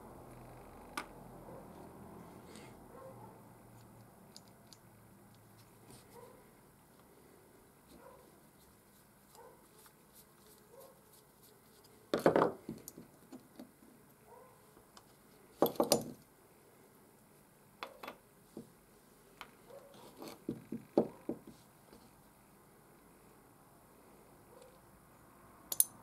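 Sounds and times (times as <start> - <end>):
small metal parts clicking: 3.8 - 4.8, 25.7 - 26.0.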